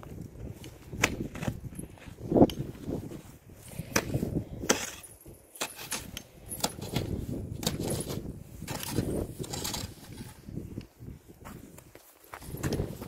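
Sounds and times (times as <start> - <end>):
snow shovel scraping snow: 3.0 - 10.6.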